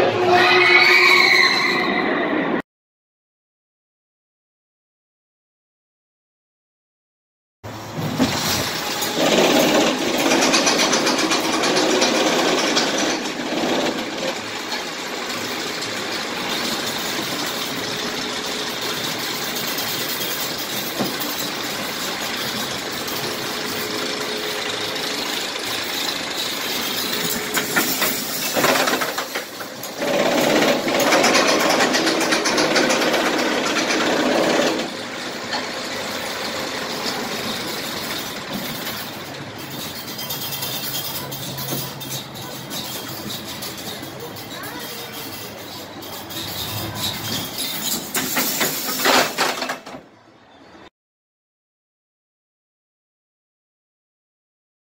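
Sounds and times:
coaster wheels rumbling on rails: 0:07.7 - 0:50.8.

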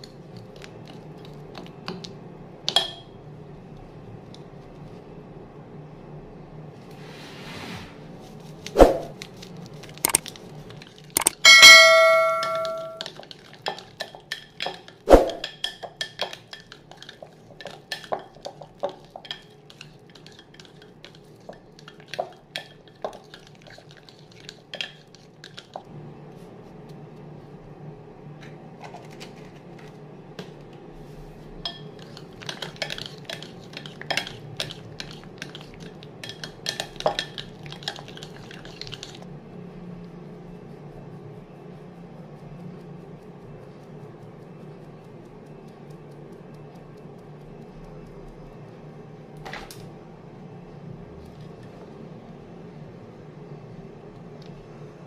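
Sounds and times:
faint steady hum: 0:00.0 - 0:55.0
beater knocking on glass bowl: 0:11.4 - 0:13.0
glass bowl ringing: 0:11.4 - 0:13.0.

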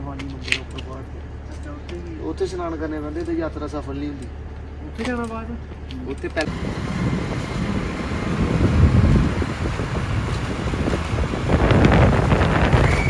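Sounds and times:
motorcycle engine running: 0:00.0 - 0:13.0
wind rumble on microphone: 0:06.4 - 0:13.0.

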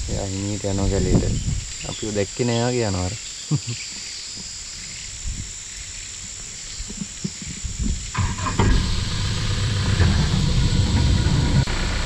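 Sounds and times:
insects chirring: 0:00.0 - 0:12.0
vehicle engine idling: 0:08.2 - 0:12.0.

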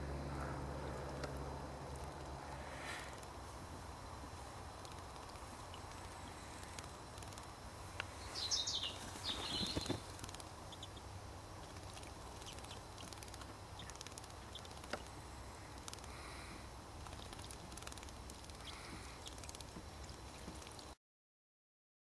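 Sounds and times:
low steady hum: 0:00.0 - 0:21.0
bird chirping: 0:08.0 - 0:15.1, 0:18.5 - 0:20.8.

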